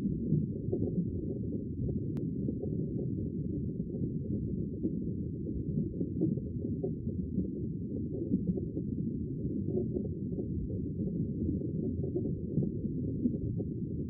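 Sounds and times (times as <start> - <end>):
low underwater rumble: 0.0 - 14.0.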